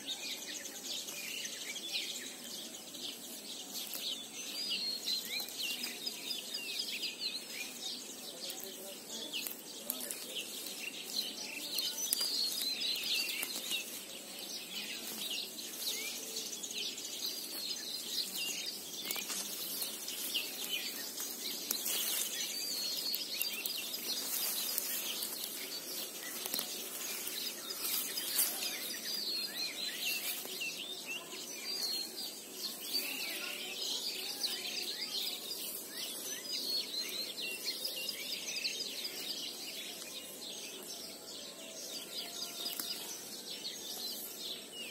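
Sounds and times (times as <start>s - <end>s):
small birds chirping: 0.0s - 44.9s
dry brush rustling through weeds: 3.5s - 6.9s, 8.4s - 37.9s, 41.8s - 44.4s.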